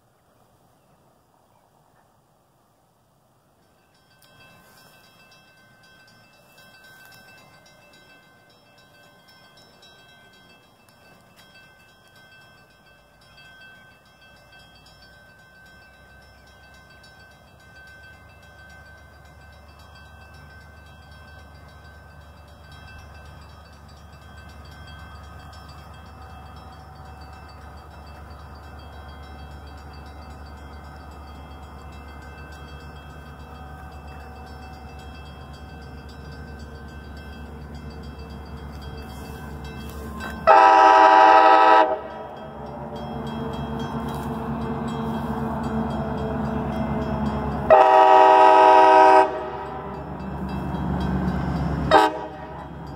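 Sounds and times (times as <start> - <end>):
diesel locomotive rumbling: 3.5 - 52.9
train horn chord blast: 39.2 - 42.8, 43.4 - 50.1, 51.8 - 52.8.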